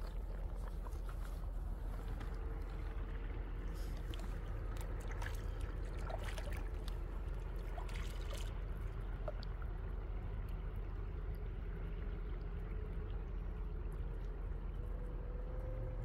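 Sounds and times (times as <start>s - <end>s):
low rumble: 0.0s - 16.0s
hands splashing in water: 4.0s - 9.4s.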